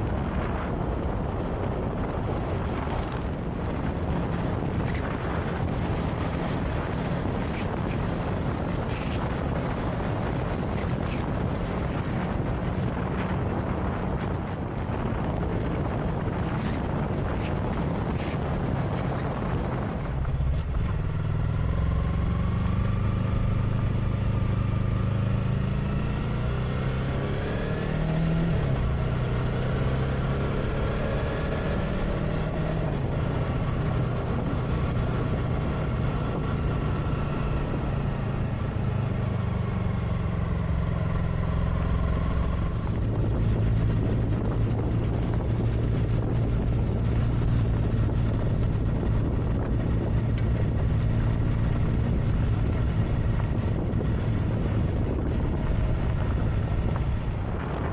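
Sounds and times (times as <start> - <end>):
motorcycle engine running: 0.0 - 57.9
road and wind noise: 0.0 - 57.9.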